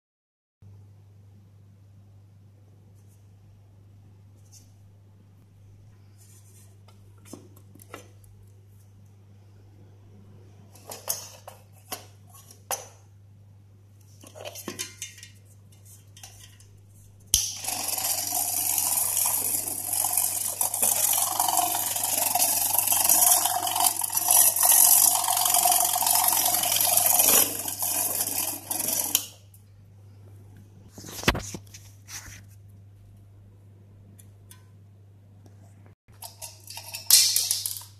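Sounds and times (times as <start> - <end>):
electric mixer motor whirring: 17.6 - 29.2
metal parts knocking and clicking: 36.1 - 37.9.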